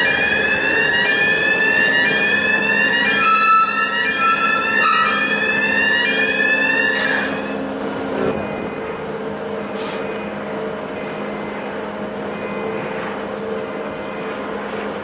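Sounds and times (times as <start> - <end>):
electronic warning alarm sweep: 0.0 - 8.9
ship machinery hum: 0.0 - 15.0
steady alarm tone: 0.0 - 15.0.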